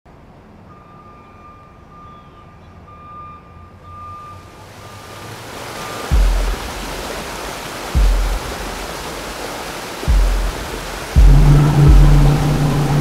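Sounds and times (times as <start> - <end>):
rushing noise: 4.6 - 13.0
low rumble: 10.1 - 13.0.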